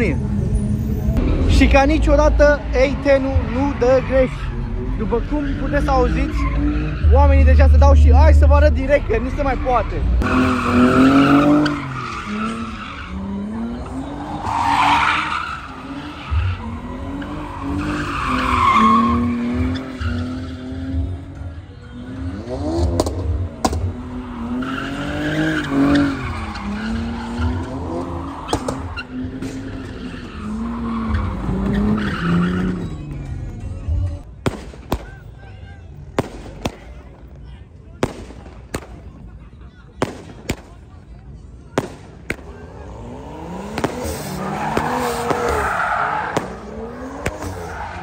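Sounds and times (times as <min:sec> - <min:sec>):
car engines revving: 0:00.0 - 0:48.0
tyre squeal: 0:24.2 - 0:34.1
sharp pops: 0:43.7 - 0:45.6.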